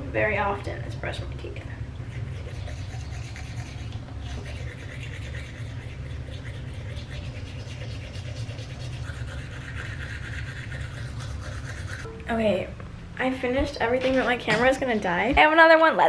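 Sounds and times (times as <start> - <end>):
low hum: 0.0 - 15.5
toothbrush scrubbing teeth: 2.0 - 12.1.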